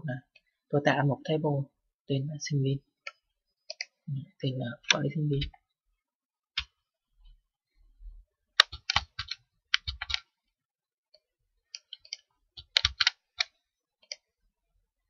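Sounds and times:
computer mouse clicking: 0:03.1 - 0:04.0.

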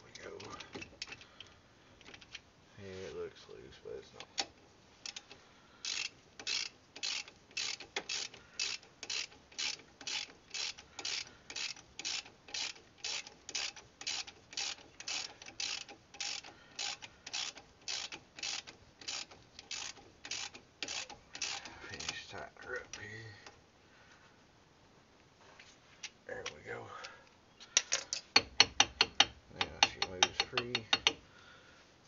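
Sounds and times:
ratchet wrench clicking: 0:04.4 - 0:22.2.

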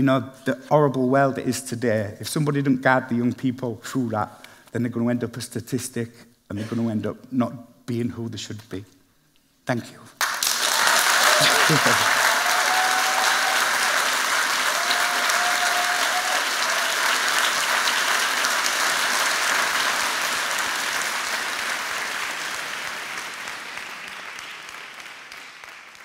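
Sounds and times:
audience applauding: 0:10.2 - 0:26.0.

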